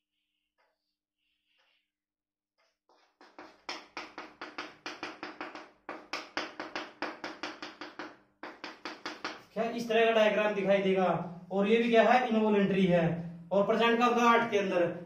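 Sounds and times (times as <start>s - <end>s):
chalk scratching on chalkboard: 2.9s - 5.7s.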